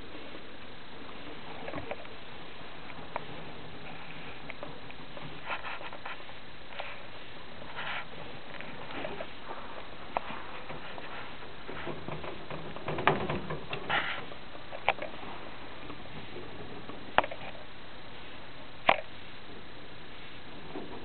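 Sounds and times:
steady hiss: 0:00.0 - 0:21.0
rats scrabbling: 0:01.1 - 0:17.8.

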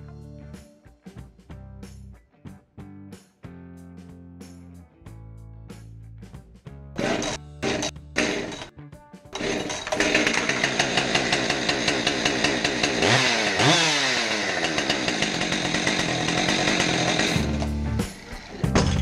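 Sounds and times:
chainsaw engine running: 0:07.0 - 0:08.7, 0:09.4 - 0:19.0.

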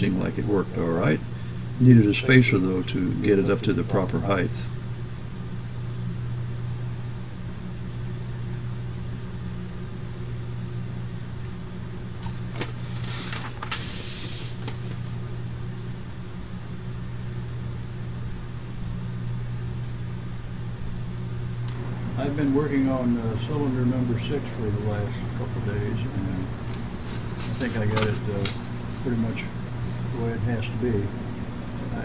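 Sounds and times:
low machine hum: 0:00.0 - 0:32.0
short hiss: 0:12.8 - 0:15.1
click: 0:21.4 - 0:21.8.

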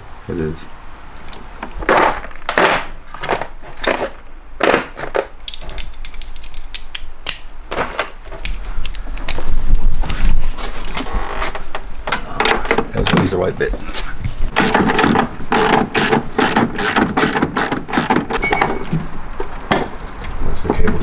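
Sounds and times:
metal sockets clacking: 0:05.4 - 0:07.4
ratchet clicking: 0:14.6 - 0:18.4.

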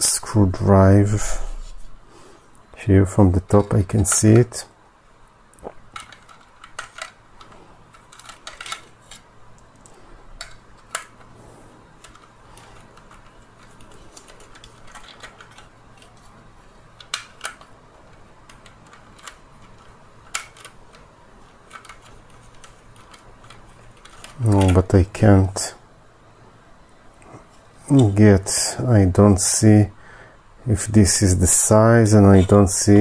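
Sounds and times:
faint low hum: 0:00.0 - 0:33.0
plastic handling clicks and knocks: 0:05.6 - 0:09.2, 0:17.0 - 0:24.8.

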